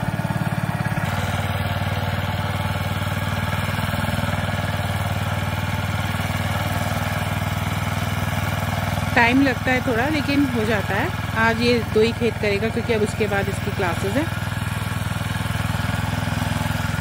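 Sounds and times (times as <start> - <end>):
power tiller engine tilling soil: 0.0 - 17.0.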